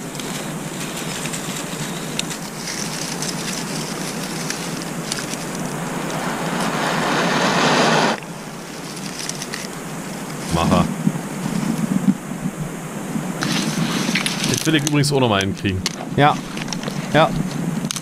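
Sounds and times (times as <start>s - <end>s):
dry grass rustling and crackling: 0.0s - 6.8s, 8.2s - 18.0s
loud rushing noise: 4.1s - 9.0s.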